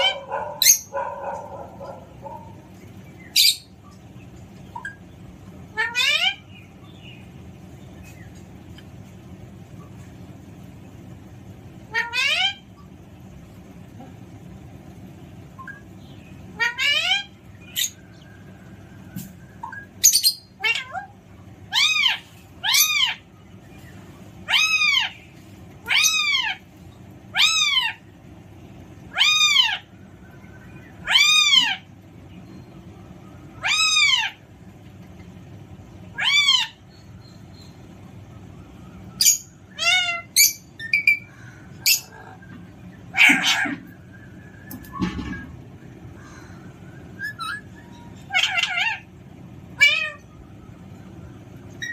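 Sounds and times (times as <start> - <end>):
parrot calling: 0.0 - 4.0, 4.7 - 6.8, 11.8 - 12.7, 15.6 - 18.4, 19.6 - 23.6, 24.4 - 28.1, 29.0 - 32.6, 33.4 - 34.6, 36.0 - 37.7, 39.1 - 50.5, 51.7 - 51.9.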